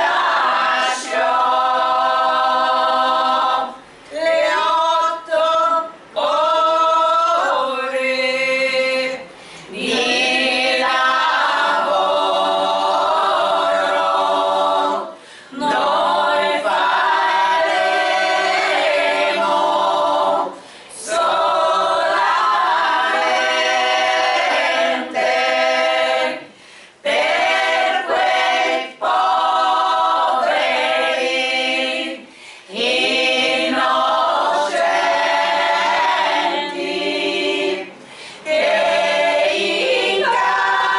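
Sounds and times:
women singing a cappella harmony: 0:00.0 - 0:40.9
singers breathing: 0:09.3 - 0:09.7, 0:15.2 - 0:15.6, 0:20.6 - 0:20.9, 0:26.5 - 0:27.0, 0:32.2 - 0:32.7, 0:38.0 - 0:38.5.

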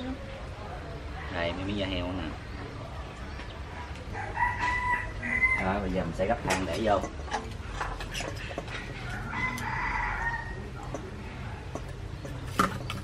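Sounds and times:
rooster crowing: 0:04.1 - 0:05.9, 0:09.0 - 0:10.8.

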